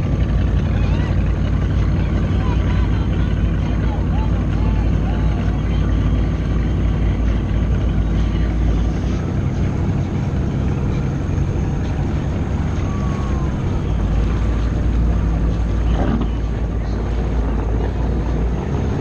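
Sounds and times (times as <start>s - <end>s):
watercraft engine running: 0.0s - 19.0s.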